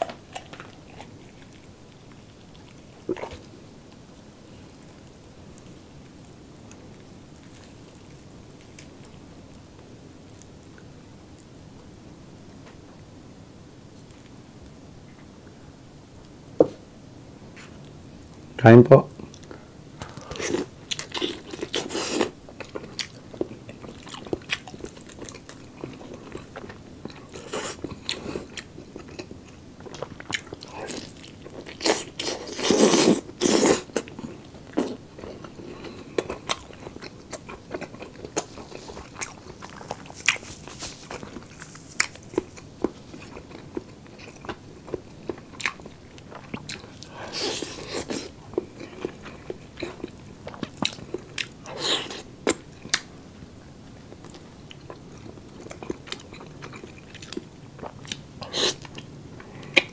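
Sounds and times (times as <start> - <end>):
person biting and chewing: 20.0 - 35.0, 36.2 - 53.1.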